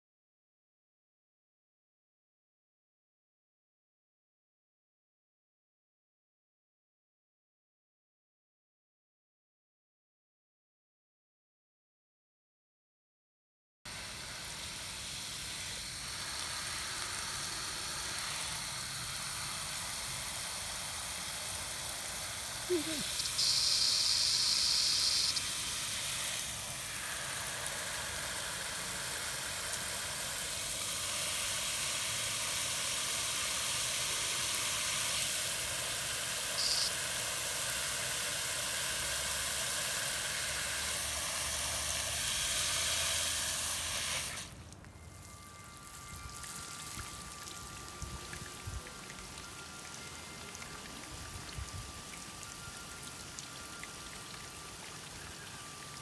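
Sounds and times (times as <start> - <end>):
hose nozzle spraying water: 13.9 - 44.6.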